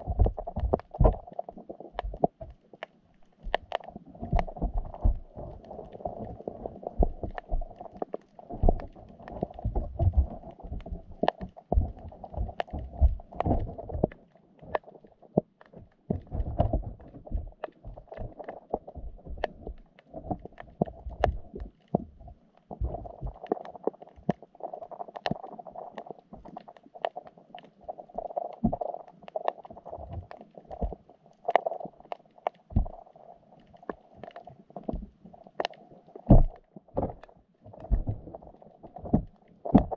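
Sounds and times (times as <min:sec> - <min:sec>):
muffled underwater thumps: 0:00.0 - 0:02.6, 0:03.4 - 0:07.8, 0:08.5 - 0:23.6, 0:32.7 - 0:33.0, 0:34.8 - 0:35.2, 0:36.2 - 0:39.9.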